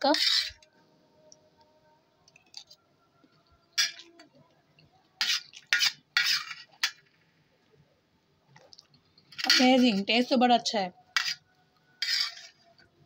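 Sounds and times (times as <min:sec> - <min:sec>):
metal spoon scraping steel plate: 0:00.0 - 0:00.6, 0:03.8 - 0:04.2, 0:05.2 - 0:07.1, 0:09.3 - 0:10.2, 0:11.1 - 0:12.8.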